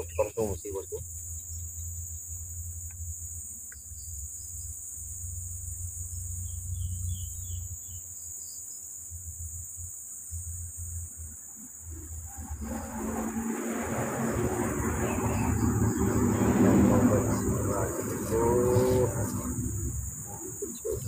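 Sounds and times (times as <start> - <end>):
insects droning: 0.0 - 21.0
low rumble: 11.8 - 21.0.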